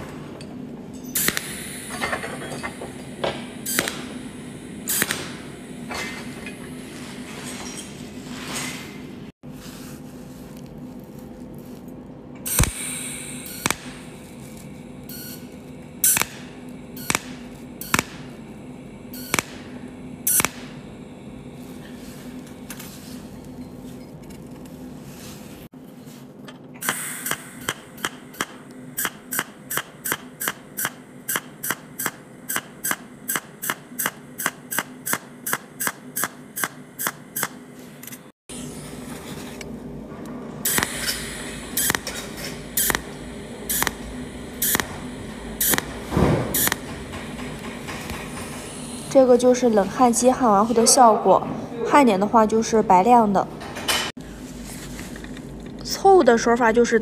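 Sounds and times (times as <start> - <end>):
steady low hum: 0.0 - 57.0
welding arc snaps: 1.1 - 5.6, 12.4 - 18.5, 19.1 - 20.8, 26.8 - 38.2, 40.6 - 49.3.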